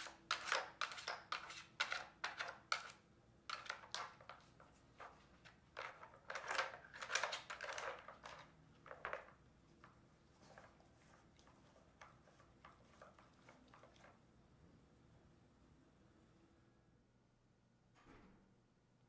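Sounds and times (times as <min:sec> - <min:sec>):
plastic puzzle toy pieces clattering: 0:05.0 - 0:09.4.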